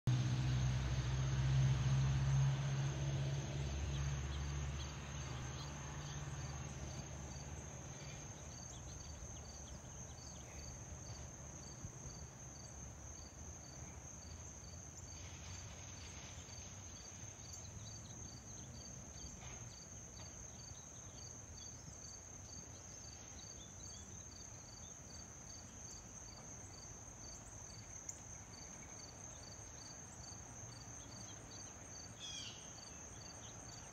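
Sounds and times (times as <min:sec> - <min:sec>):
insects trilling: 0:02.3 - 0:33.9
pulsed insect chirp: 0:03.6 - 0:15.6.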